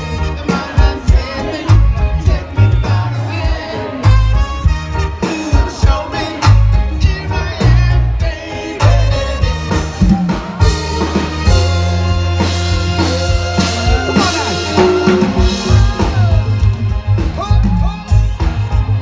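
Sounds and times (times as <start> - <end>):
drum kit: 0.0 - 19.0
heavy bass line: 0.0 - 19.0
reggae band playing: 0.0 - 19.0
saxophone: 4.0 - 5.7, 8.8 - 16.8.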